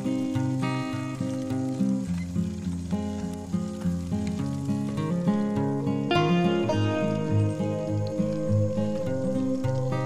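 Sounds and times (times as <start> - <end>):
melody of held notes: 5.7 - 10.0
low bass line: 6.1 - 10.0.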